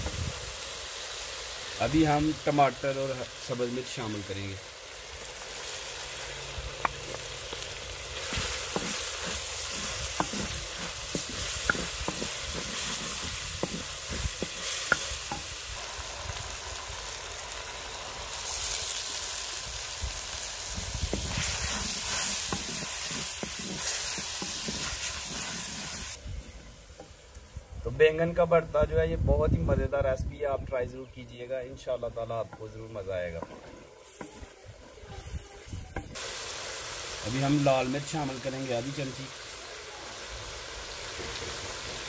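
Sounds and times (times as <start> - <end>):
vegetables sizzling in ghee: 0.0 - 42.0
wooden spoon scraping pot: 8.2 - 15.5, 21.1 - 26.2.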